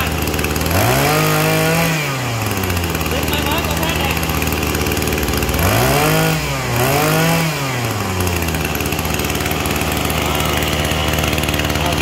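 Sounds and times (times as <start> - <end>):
brush cutter engine idling and revving: 0.0 - 12.0.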